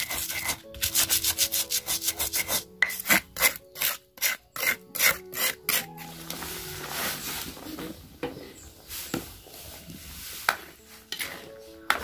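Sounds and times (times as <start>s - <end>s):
stone pestle grinding in mortar: 0.0s - 6.1s.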